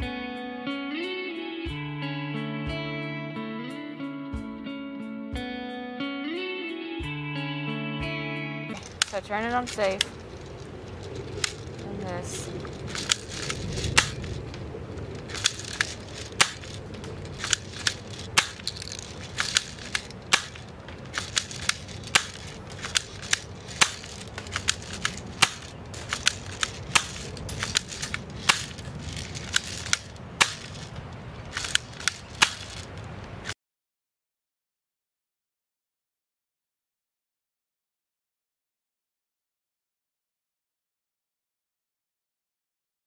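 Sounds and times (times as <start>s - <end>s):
airsoft gun shots: 12.9s - 14.4s, 15.3s - 16.8s, 17.4s - 28.8s, 29.4s - 30.9s, 31.5s - 32.8s.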